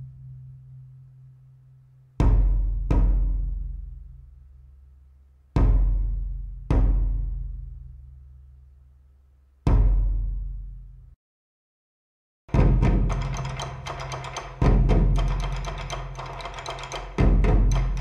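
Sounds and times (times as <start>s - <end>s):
large drum struck with sticks: 12.5s - 18.0s.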